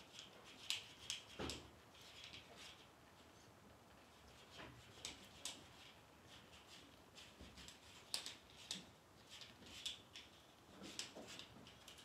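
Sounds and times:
small clicks and ticks: 7.6 - 12.0.

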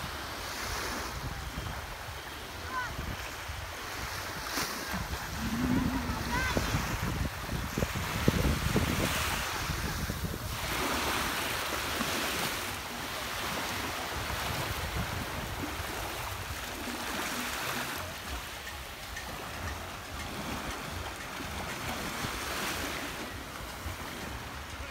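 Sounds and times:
small waves breaking on shore: 0.0 - 24.9
wind buffeting microphone: 2.8 - 12.5, 13.4 - 17.3.

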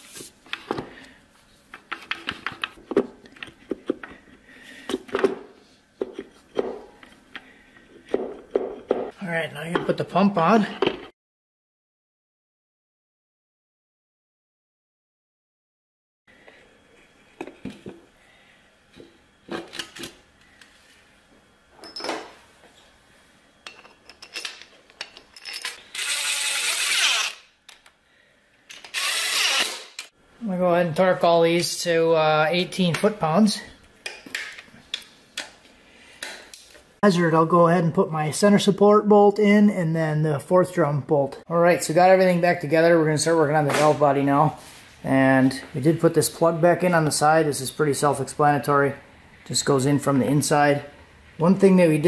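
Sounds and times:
metal clinks and clanks: 23.7 - 25.8
cordless power tool running: 28.9 - 30.1.

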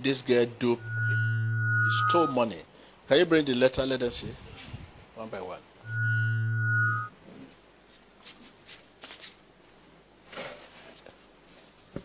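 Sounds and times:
held electronic tone: 0.8 - 2.4, 5.8 - 7.1.

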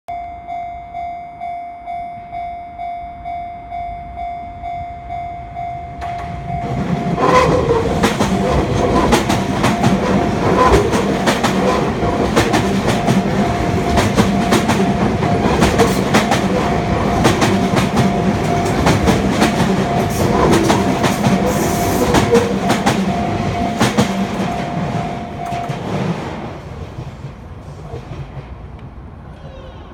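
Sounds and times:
level-crossing bell ringing: 0.1 - 10.4, 12.6 - 26.1
train wheels clattering: 6.0 - 29.0.

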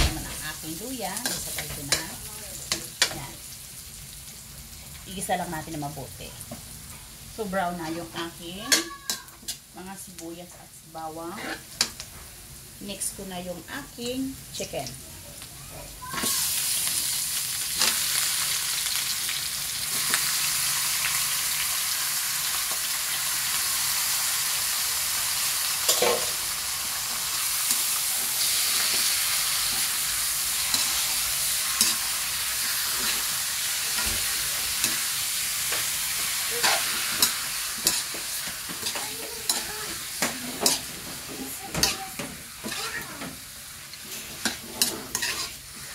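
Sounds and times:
chicken sizzling in hot oil: 0.0 - 45.9
metal spatula scraping wok: 7.8 - 9.6, 11.2 - 12.1, 25.8 - 43.0, 43.9 - 45.9.

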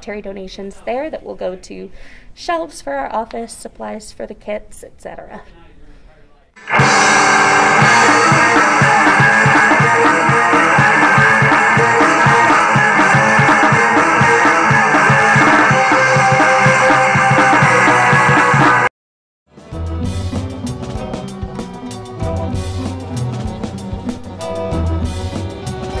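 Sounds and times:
rock music with guitar: 6.6 - 18.9, 19.6 - 26.0.

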